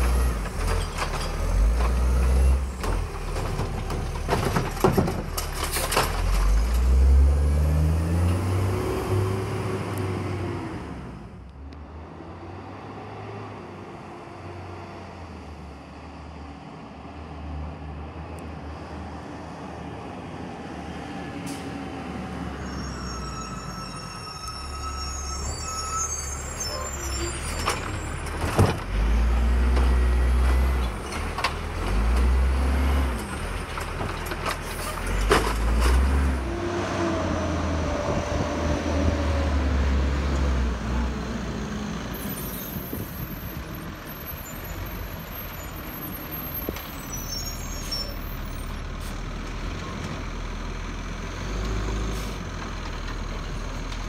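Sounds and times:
diesel engines running: 26.2s - 54.0s.

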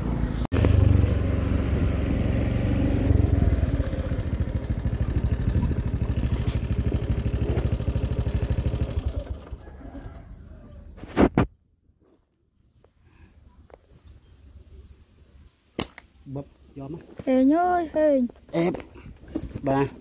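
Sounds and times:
motorcycle engine running: 0.0s - 10.1s.

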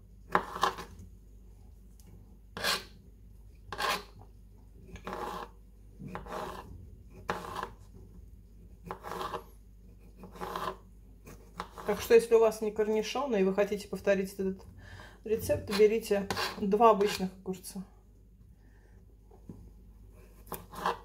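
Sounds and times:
knife cutting on plastic board: 0.3s - 1.0s, 2.6s - 3.0s, 3.7s - 4.2s, 4.8s - 7.9s, 8.8s - 12.1s, 15.6s - 17.2s, 20.2s - 21.0s.

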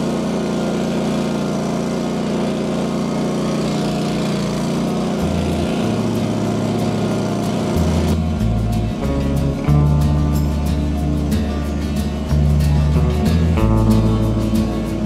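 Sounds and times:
small gasoline engine running: 0.0s - 15.0s
background music with bass: 4.6s - 15.0s.

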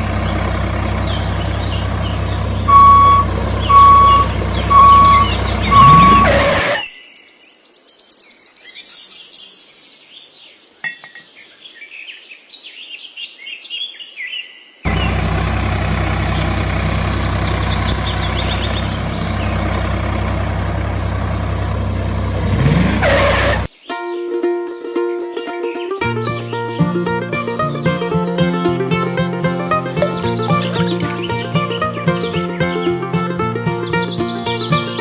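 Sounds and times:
engine running: 0.0s - 6.8s, 14.9s - 23.7s, 26.1s - 35.0s
birds chirping: 0.0s - 23.9s, 24.9s - 35.0s.

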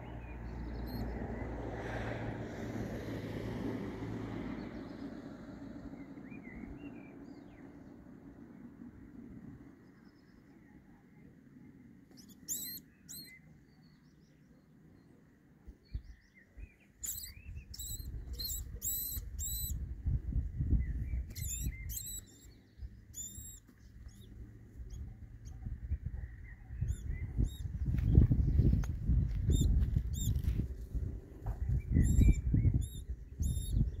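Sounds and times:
vole squeaking in distress: 12.2s - 13.3s, 17.0s - 19.8s, 21.4s - 22.5s
low rumbling noise: 15.9s - 34.0s.

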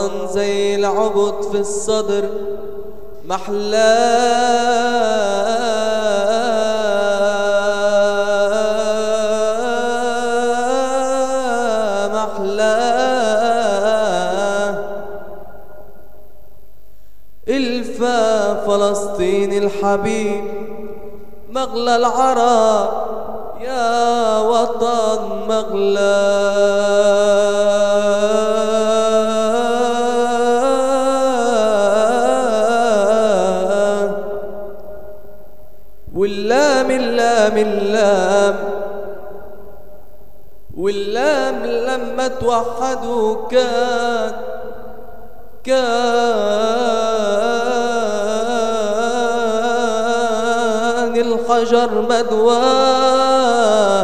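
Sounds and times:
person singing a long note: 3.2s - 15.1s, 21.5s - 34.8s, 36.1s - 39.3s, 40.7s - 44.9s, 45.6s - 54.0s.

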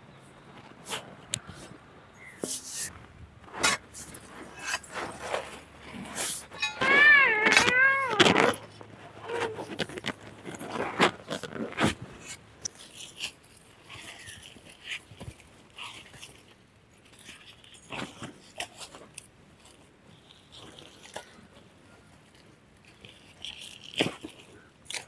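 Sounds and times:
digging bar knocking stony soil: 2.3s - 8.8s
wavering animal cry: 6.6s - 8.6s, 9.2s - 9.8s.

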